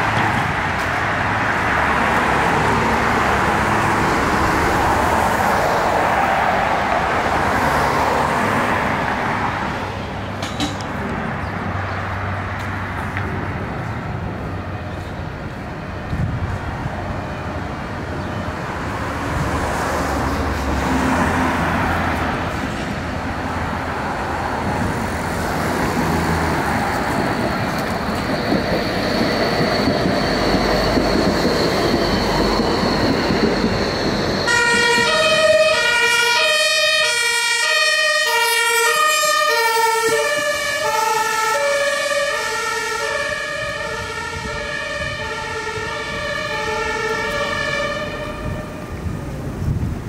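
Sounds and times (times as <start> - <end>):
street traffic: 0.0 - 50.0
two-tone emergency siren: 25.8 - 49.3.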